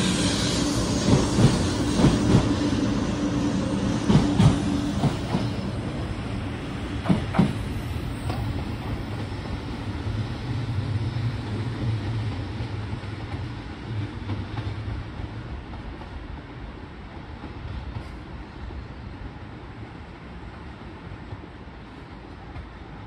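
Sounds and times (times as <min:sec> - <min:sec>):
train rumbling: 0:00.0 - 0:23.0
train wheels clacking on rail joints: 0:01.0 - 0:02.6, 0:04.0 - 0:05.7, 0:07.0 - 0:09.2.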